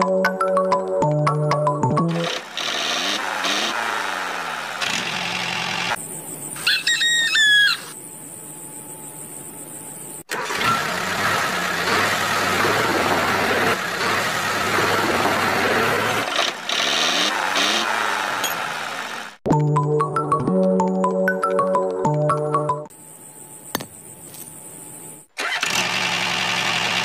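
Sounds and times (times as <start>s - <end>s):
rooster crowing: 6.6s - 8.0s.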